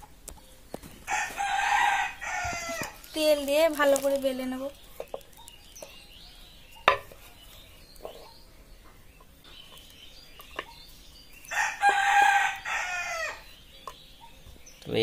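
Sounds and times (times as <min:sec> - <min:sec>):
rooster crowing: 0:01.1 - 0:03.0, 0:11.5 - 0:13.5.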